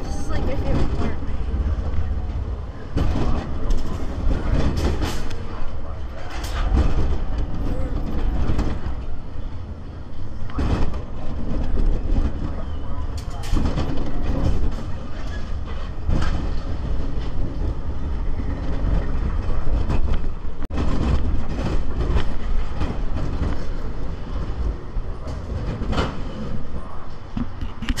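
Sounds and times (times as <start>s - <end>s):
roller coaster wheels rumbling: 0.0s - 28.0s
rattling clacks: 2.3s - 9.2s.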